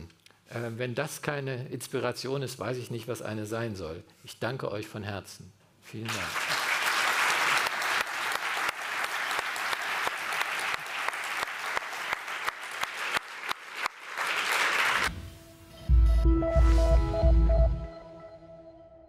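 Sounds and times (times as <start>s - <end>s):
audience applauding: 6.0s - 15.1s.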